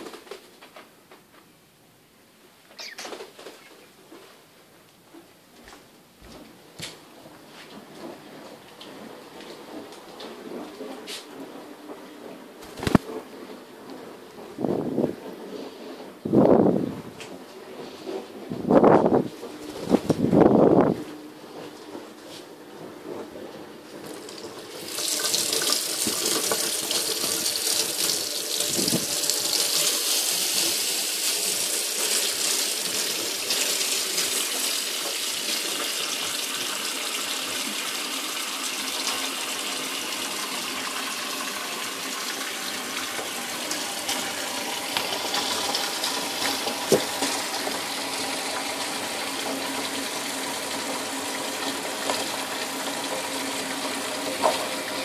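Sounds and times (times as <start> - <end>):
water running into steel sink: 24.0 - 55.0
tap turned on: 46.4 - 47.8, 54.4 - 54.7.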